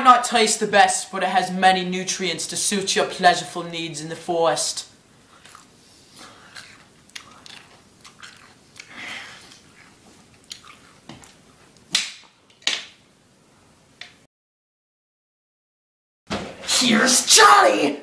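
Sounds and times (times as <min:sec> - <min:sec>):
person chewing crunchy food: 0:05.2 - 0:11.9.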